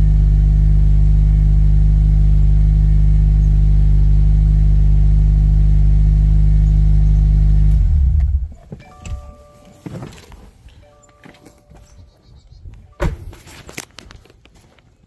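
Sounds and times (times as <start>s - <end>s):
car engine idling: 0.0s - 9.8s.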